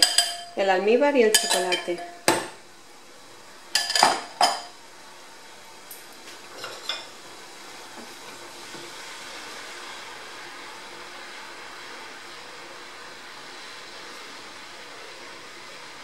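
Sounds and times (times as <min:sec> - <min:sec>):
metal clinking against saucepan: 0:00.0 - 0:00.6, 0:01.3 - 0:02.5, 0:03.8 - 0:04.7
hot syrup hissing in pan: 0:00.0 - 0:16.0.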